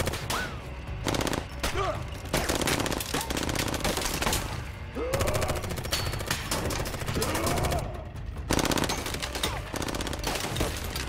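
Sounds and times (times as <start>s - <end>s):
automatic rifle fire bursts: 1.0s - 1.7s, 8.5s - 10.6s.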